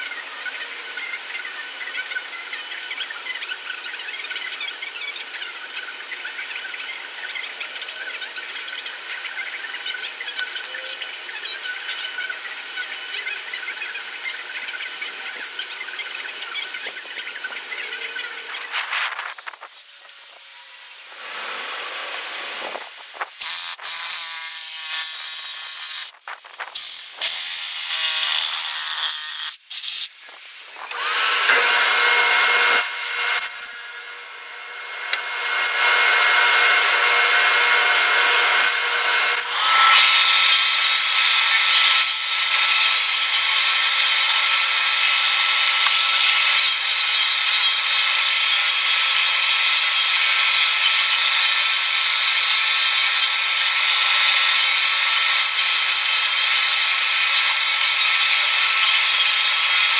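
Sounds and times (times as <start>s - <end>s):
table saw cutting wood: 0.0s - 19.6s, 21.1s - 29.6s, 30.6s - 59.9s
disc sander sanding wood: 30.3s - 42.0s.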